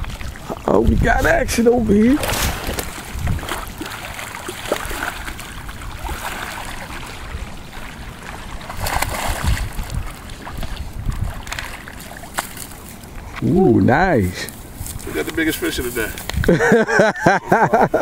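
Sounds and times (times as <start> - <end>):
wind buffeting microphone: 0.0 - 12.3, 13.0 - 17.0
lapping lake water: 0.0 - 18.0
fish splashing at surface: 2.0 - 7.3, 8.6 - 13.0.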